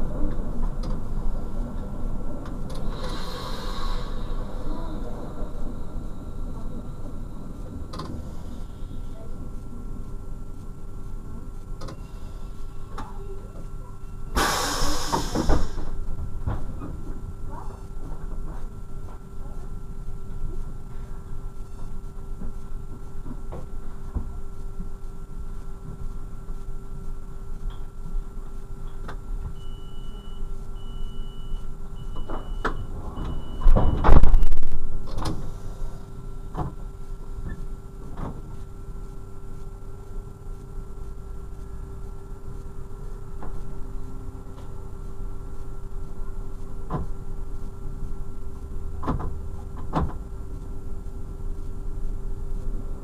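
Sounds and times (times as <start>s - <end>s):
train doors shutting: 0.0s - 9.3s, 14.2s - 18.4s, 32.1s - 36.7s
diesel railcar engine idling: 0.0s - 18.4s, 34.8s - 36.5s
diesel railcar engine drone: 0.0s - 31.0s, 31.6s - 53.0s
loud air hiss: 2.8s - 4.5s, 14.4s - 15.9s.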